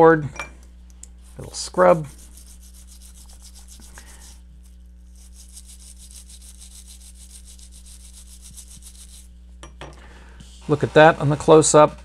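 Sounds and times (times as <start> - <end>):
steady low hum: 0.0 - 12.0
brush scrubbing circuit board: 1.4 - 9.3.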